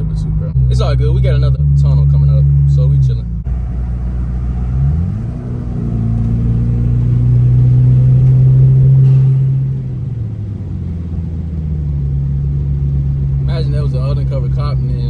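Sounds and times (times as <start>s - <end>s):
car engine accelerating: 0.0s - 15.0s.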